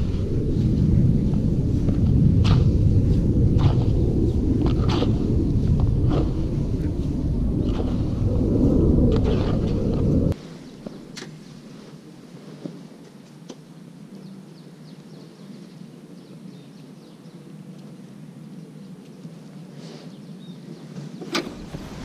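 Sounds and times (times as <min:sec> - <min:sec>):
low background rumble: 0:00.0 - 0:10.4, 0:21.5 - 0:22.0.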